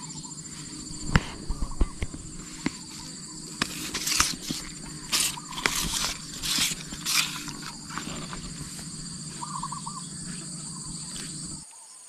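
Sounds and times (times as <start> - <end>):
insects droning: 0.0 - 12.0
hissy rustles: 0.4 - 11.6
hands handling fishing tackle: 1.1 - 8.7.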